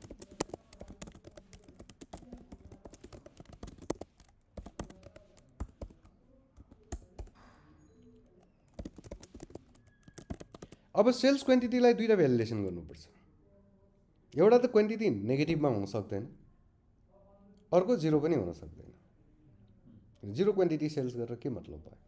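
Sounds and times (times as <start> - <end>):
computer keyboard typing: 0.0 - 10.9.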